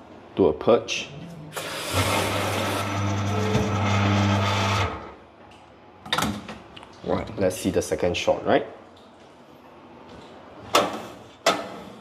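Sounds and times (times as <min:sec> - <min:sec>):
espresso machine water hissing: 0:01.6 - 0:02.8.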